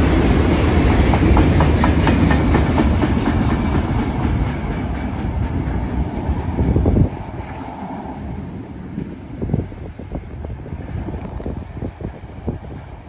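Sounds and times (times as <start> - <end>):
train wheels clicking on track: 0.0 - 12.0
heavy train rumble: 0.0 - 13.0.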